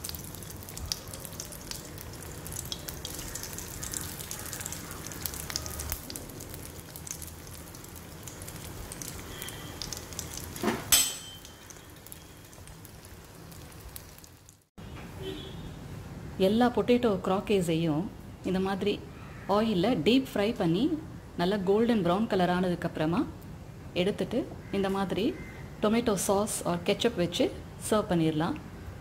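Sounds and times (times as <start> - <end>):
deep-frying sizzle with crackling pops: 0.0 - 14.7.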